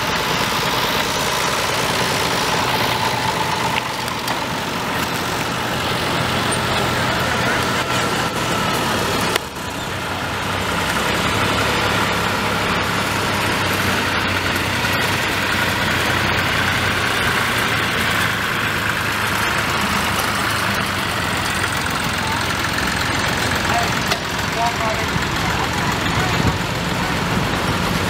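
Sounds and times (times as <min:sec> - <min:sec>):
tractor engines driving past: 0:00.0 - 0:28.0.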